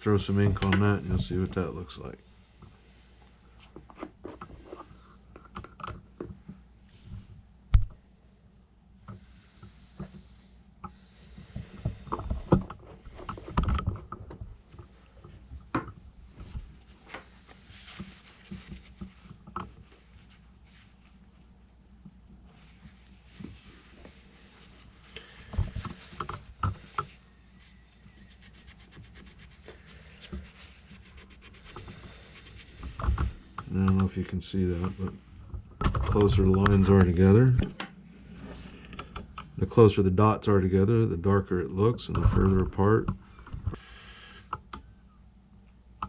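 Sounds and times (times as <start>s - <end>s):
paper towel wiping: 16.4s - 21.6s, 22.4s - 33.5s.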